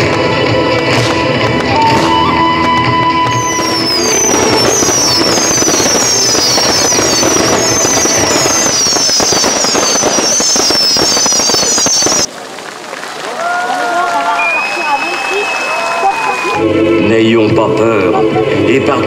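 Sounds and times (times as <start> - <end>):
fireworks crackling: 0.0 - 16.8
firework whistles sliding down: 1.7 - 12.3, 14.4 - 16.6.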